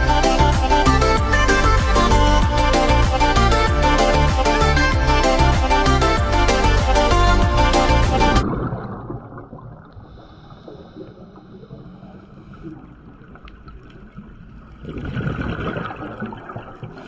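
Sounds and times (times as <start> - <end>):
muffled underwater rushing: 7.4 - 17.0
bubbling of exhaled air: 8.0 - 17.0.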